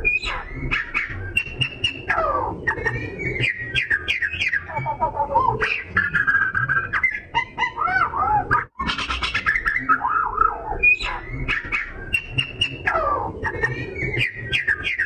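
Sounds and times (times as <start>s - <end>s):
songbird singing whistles: 0.0s - 2.1s, 3.2s - 4.8s, 9.4s - 12.8s.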